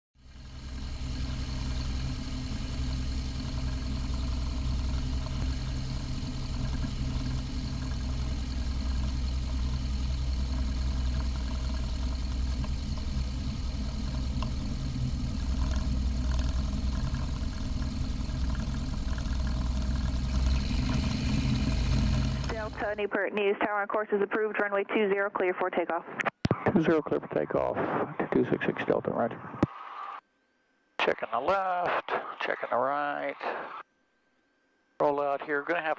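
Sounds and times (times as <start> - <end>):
propeller plane engine droning: 0.2 - 23.2.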